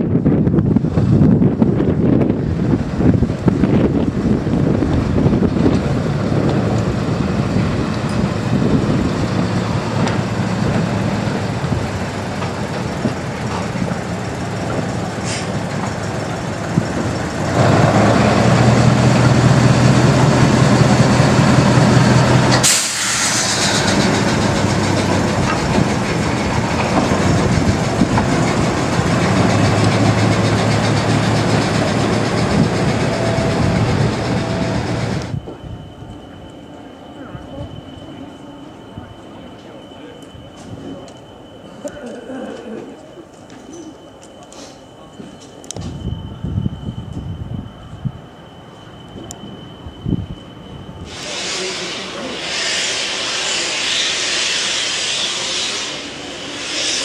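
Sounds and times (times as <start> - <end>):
diesel locomotive engine running: 0.0 - 57.0
short hiss of air: 15.1 - 15.6, 22.5 - 24.1, 51.0 - 57.0.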